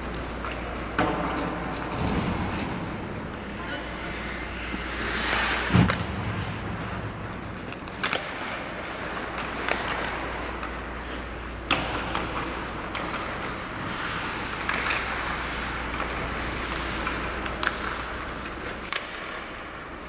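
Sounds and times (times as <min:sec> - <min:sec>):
hockey sticks clacking on puck: 0:00.0 - 0:02.8, 0:07.4 - 0:19.7
steady low hum: 0:00.0 - 0:20.0.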